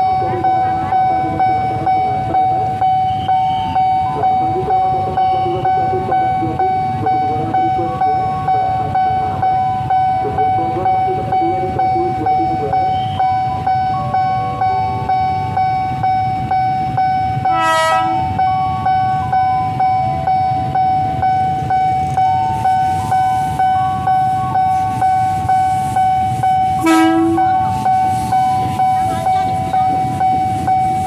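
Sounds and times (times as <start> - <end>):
electric train rumbling: 0.0 - 31.0
level crossing bell ringing: 0.0 - 31.0
train horn: 17.5 - 18.4, 26.8 - 27.6.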